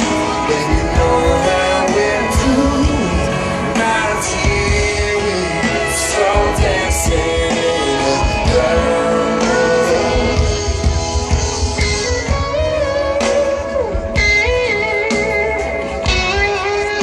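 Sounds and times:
lead electric guitar: 0.0s - 17.0s
live blues-rock band playing: 0.0s - 17.0s.

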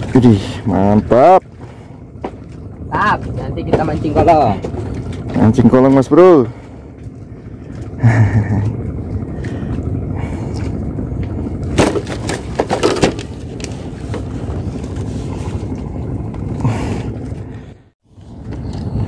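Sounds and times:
steady low rumble: 0.0s - 19.0s
sharp knocks and rattles: 11.2s - 14.9s.

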